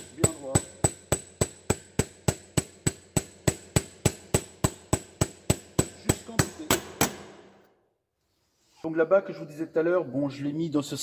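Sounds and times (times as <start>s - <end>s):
hammer tapping on steel: 0.0s - 7.3s.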